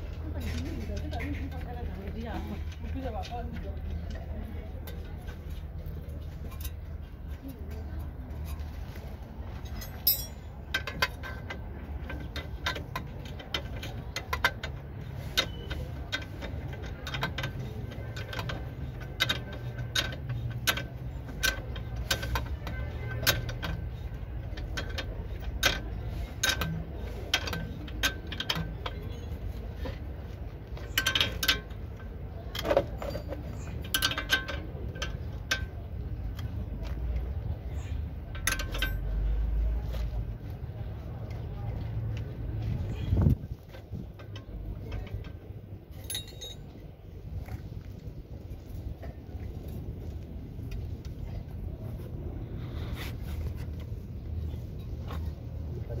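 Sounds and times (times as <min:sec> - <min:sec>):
spanner clicking on metal bolts: 0:09.7 - 0:30.1, 0:30.7 - 0:36.6, 0:37.8 - 0:39.6, 0:43.1 - 0:46.8.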